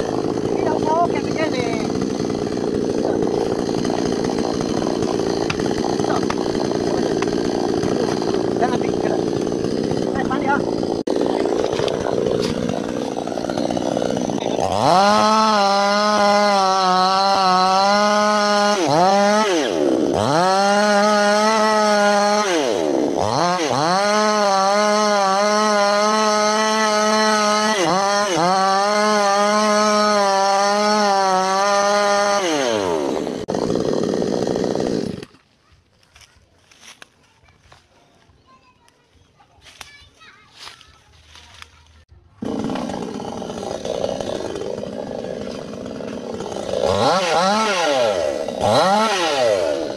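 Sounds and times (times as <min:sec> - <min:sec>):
chainsaw cutting wood: 0:00.0 - 0:37.9, 0:39.6 - 0:49.9.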